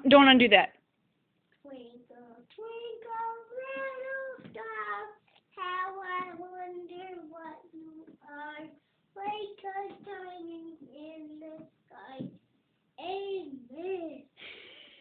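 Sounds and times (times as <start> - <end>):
young boy singing: 2.0 - 12.4.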